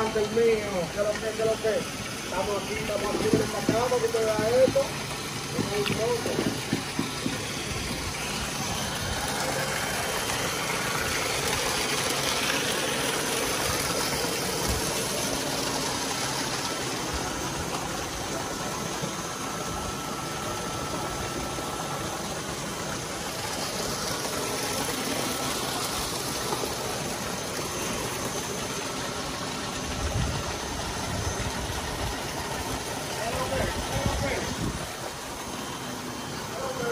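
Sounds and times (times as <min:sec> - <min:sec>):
churning water splashing: 0:00.0 - 0:36.9
water pouring from pipe: 0:00.0 - 0:36.9.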